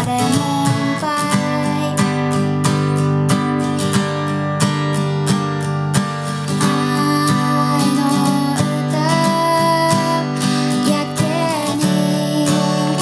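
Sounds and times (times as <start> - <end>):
acoustic guitar strumming: 0.0 - 13.0.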